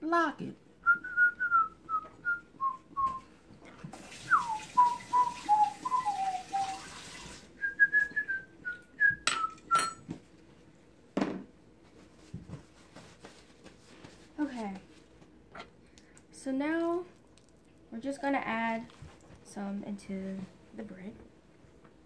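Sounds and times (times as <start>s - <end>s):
person whistling a tune: 0.8s - 3.3s, 4.3s - 6.8s, 7.6s - 10.0s.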